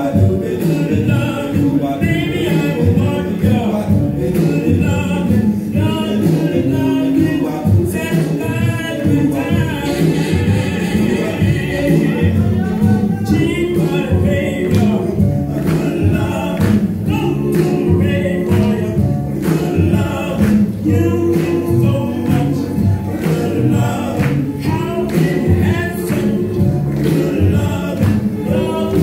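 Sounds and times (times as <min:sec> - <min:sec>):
boogie-woogie dance music: 0:00.0 - 0:29.0
person singing: 0:00.0 - 0:29.0.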